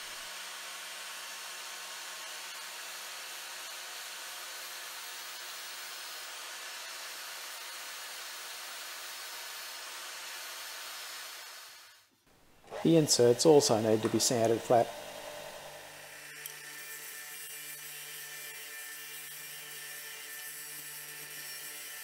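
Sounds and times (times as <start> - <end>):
angle grinder grinding steel: 12.6 - 22.0.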